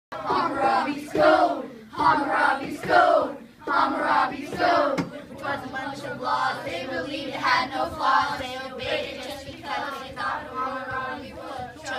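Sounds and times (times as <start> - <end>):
children singing in unison: 0.1 - 11.9.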